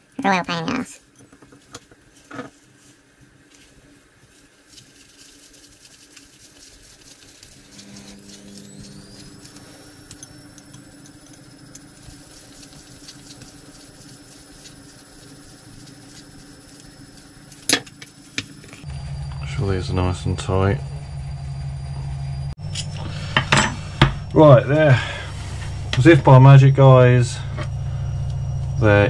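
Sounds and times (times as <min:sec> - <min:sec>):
faint high whine: 0:07.5 - 0:29.0.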